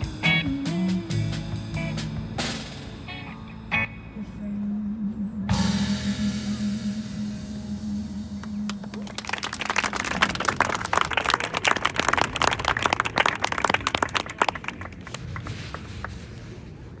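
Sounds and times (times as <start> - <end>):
audience applauding: 8.7 - 16.2.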